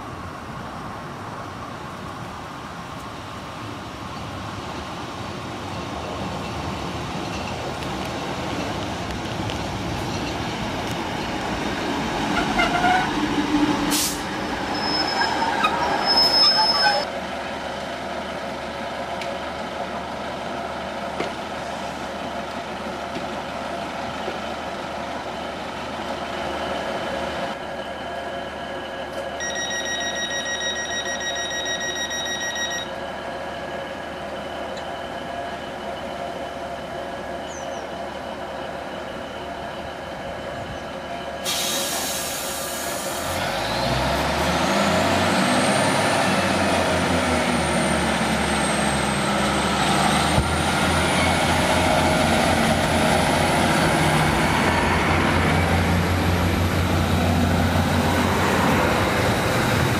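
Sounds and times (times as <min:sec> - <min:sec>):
diesel train arriving: 0:00.0 - 0:59.9
high brake squeal: 0:13.9 - 0:17.1, 0:37.4 - 0:38.0
steady high tone: 0:26.2 - 0:41.5
sharp hiss: 0:41.4 - 0:43.4.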